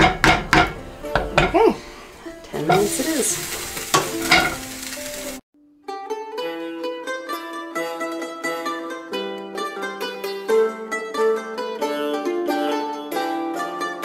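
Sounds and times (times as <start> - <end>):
utensil knocking and scraping pan: 0.0 - 1.7, 2.4 - 4.8
stew sizzling: 0.0 - 5.4
plucked-string music: 0.0 - 14.0.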